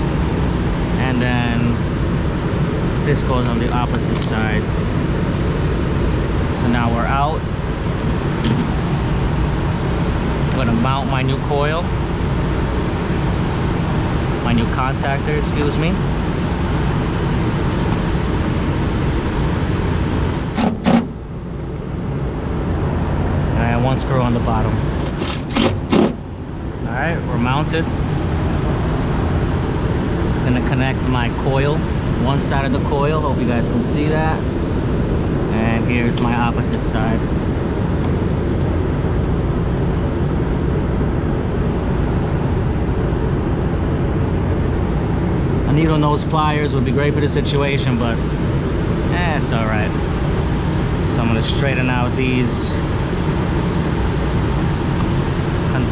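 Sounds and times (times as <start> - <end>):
steady low rumble: 0.0 - 55.9
cordless drill driving screw: 24.9 - 26.2.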